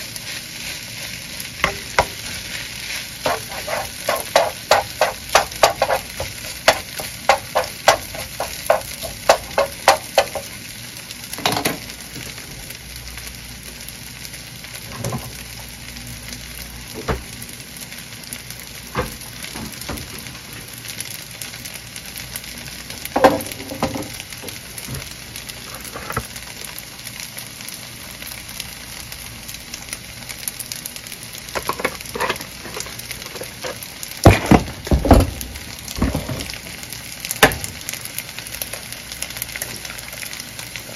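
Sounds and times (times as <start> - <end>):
rice sizzling in a pan: 0.0 - 40.9
spatula scraping and tapping pan: 1.6 - 2.5, 3.2 - 10.5, 31.6 - 33.8.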